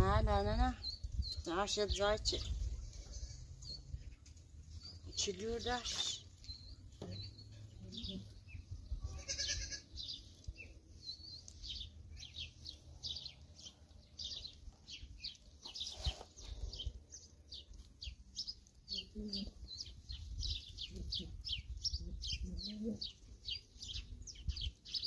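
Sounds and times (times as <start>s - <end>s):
small birds chirping: 0.0s - 25.0s
livestock bleat: 9.0s - 9.9s.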